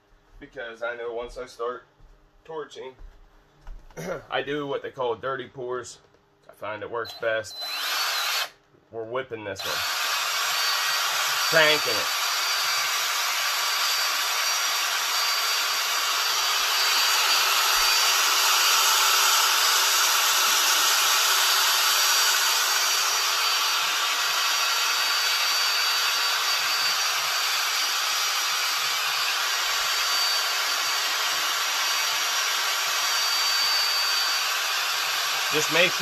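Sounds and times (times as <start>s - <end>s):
power drill mixing resin: 7.0s - 8.6s, 9.6s - 36.0s.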